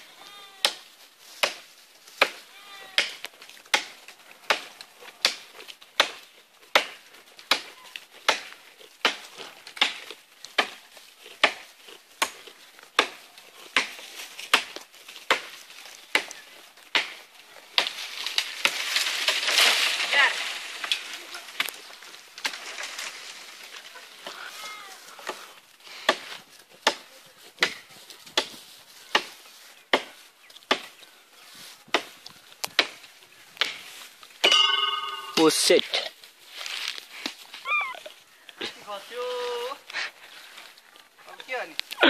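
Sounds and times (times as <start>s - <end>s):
sharp chopping strokes: 3.0s - 16.3s, 27.6s - 31.0s.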